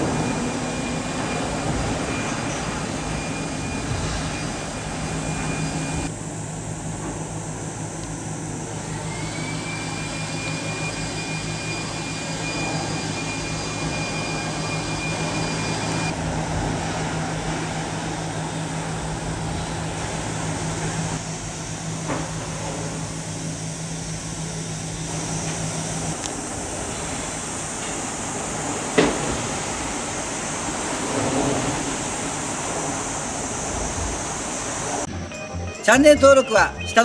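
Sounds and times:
ship engine low drone: 0.0 - 37.0
noisy rushing haze: 24.2 - 35.1.

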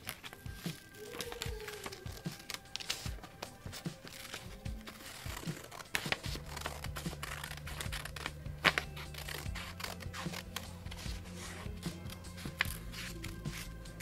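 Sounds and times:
paper rustling: 0.0 - 14.0
scissors snipping paper: 0.0 - 14.0.

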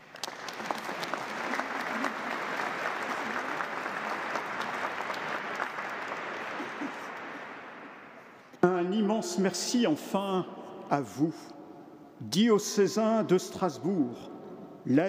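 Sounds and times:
crowd clapping: 0.0 - 8.6.

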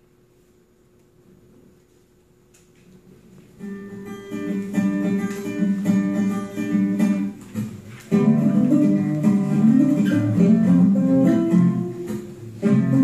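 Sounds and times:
acoustic guitar music: 3.4 - 13.0.

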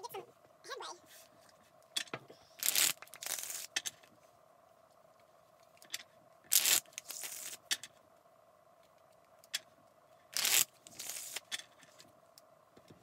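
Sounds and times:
playing cards riffle-shuffled: 2.6 - 3.7, 6.5 - 7.6, 10.4 - 11.5.

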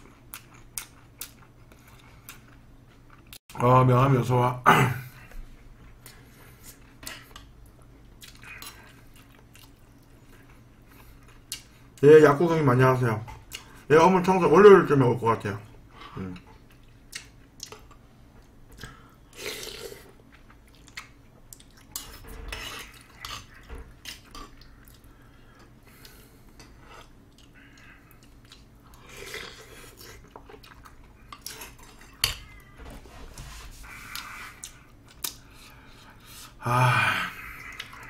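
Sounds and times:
chewing: 5.8 - 12.0, 16.4 - 32.7, 33.8 - 36.0.

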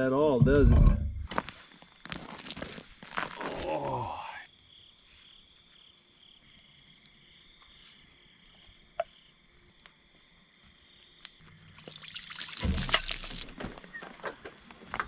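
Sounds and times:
night insects chirping: 1.3 - 14.6
short human voice: 3.4 - 4.4.

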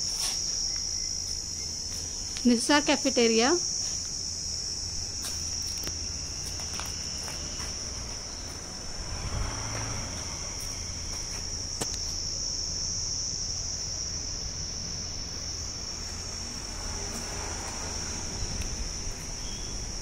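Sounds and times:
insects droning: 0.0 - 20.0
low rumble: 7.8 - 11.3.

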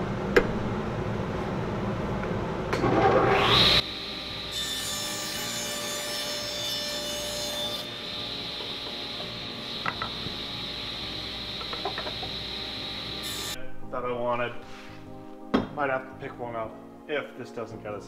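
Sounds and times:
table saw running: 2.8 - 13.6
saw blade cutting plywood: 3.1 - 10.5
wood knocks: 15.5 - 15.8.

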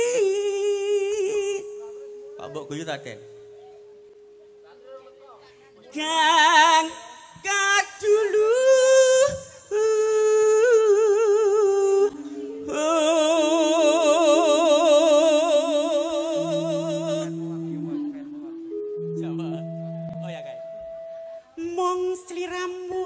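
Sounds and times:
woman singing with vibrato: 0.0 - 2.3, 5.9 - 19.0, 21.4 - 23.0
held accompaniment notes: 1.1 - 6.9, 12.0 - 22.6.

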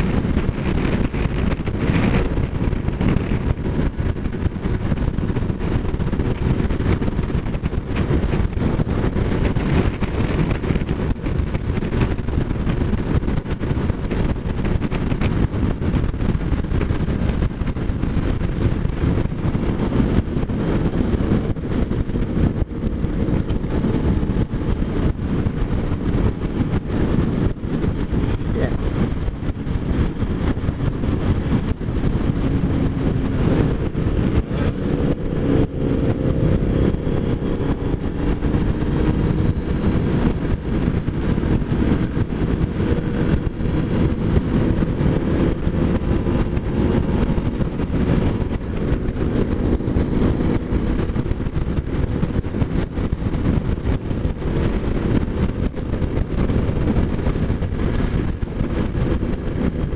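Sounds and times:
motorcycle engine cruising: 0.0 - 59.9
road noise: 0.0 - 59.9
wind rush on microphone: 0.0 - 59.9.

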